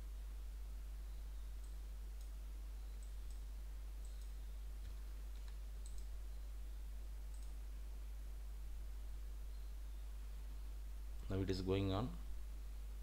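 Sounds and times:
low electrical hum: 0.0 - 13.0
computer mouse clicks: 1.6 - 6.1, 7.3 - 7.6.

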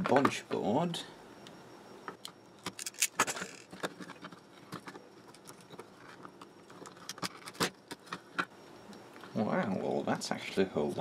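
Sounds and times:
clicks and clatter of handled parts: 2.1 - 8.5.

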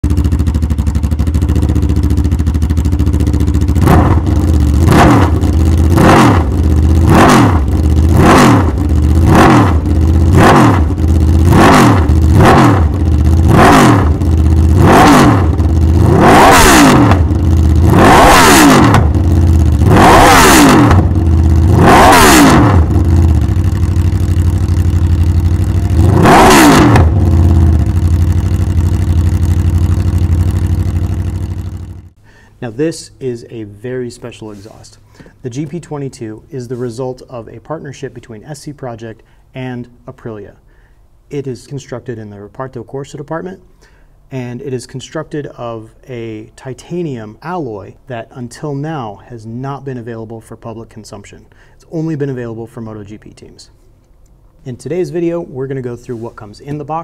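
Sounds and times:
motorcycle engine idling and revving: 0.0 - 32.2.

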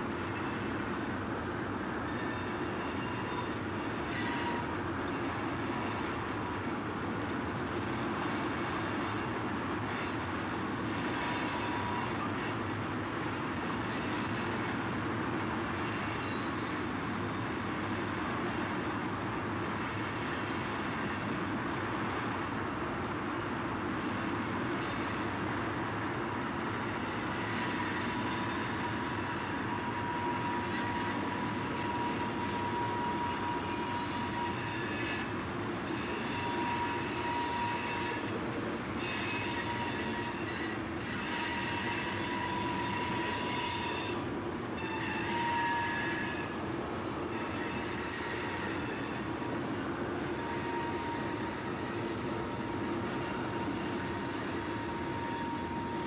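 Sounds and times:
freight train wheels on rails: 0.0 - 56.0
high-pitched wheel squeal: 2.1 - 5.2, 26.9 - 35.3, 35.9 - 38.3, 39.0 - 44.2, 44.8 - 46.6, 47.3 - 56.0.

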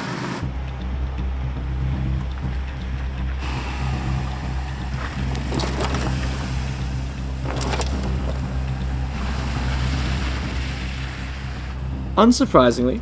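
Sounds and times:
car engine running: 0.0 - 12.2
tyres on gravel: 4.9 - 10.7.

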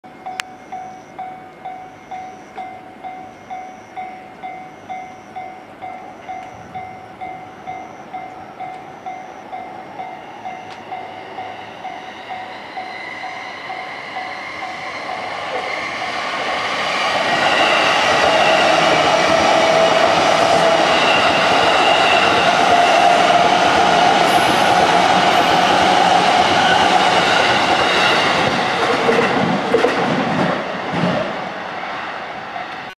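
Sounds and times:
level crossing warning bell: 0.1 - 15.8
electric train passing: 0.1 - 32.9.

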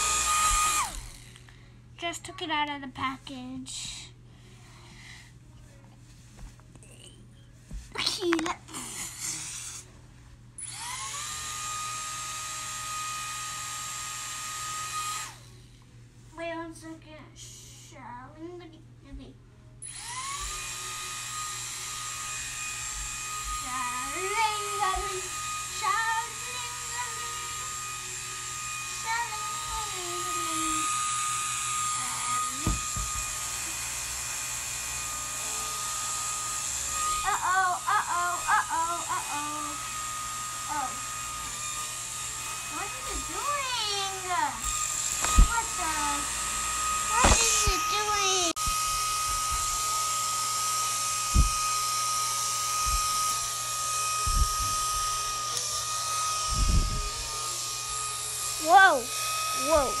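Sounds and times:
toy propeller motor whining: 0.0 - 1.5, 8.7 - 9.9, 10.6 - 15.6, 19.8 - 60.0
dull knock: 32.6 - 33.2.

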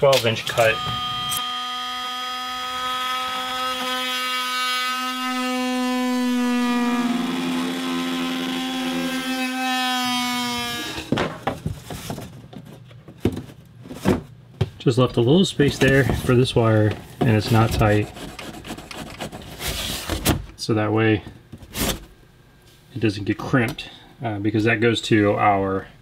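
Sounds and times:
power saw cutting plywood: 0.0 - 11.2.

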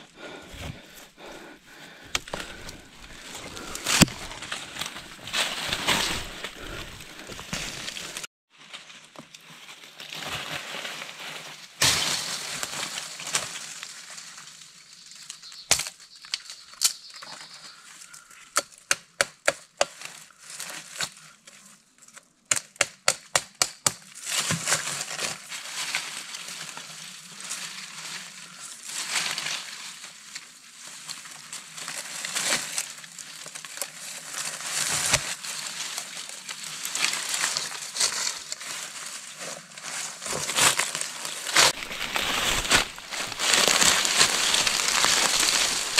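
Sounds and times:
dry leaves crackling and rustling: 1.8 - 16.6, 24.2 - 45.9.

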